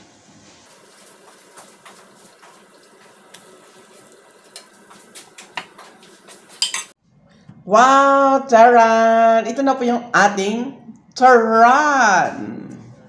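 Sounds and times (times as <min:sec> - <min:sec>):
food sizzling in hot oil: 0:00.5 - 0:07.0
utensil clinking on dishes: 0:06.5 - 0:07.0.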